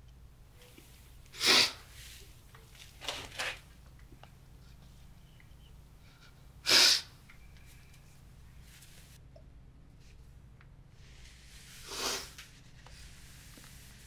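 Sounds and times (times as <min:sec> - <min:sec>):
man sniffing: 0:01.3 - 0:01.9, 0:06.6 - 0:07.1, 0:11.8 - 0:12.4.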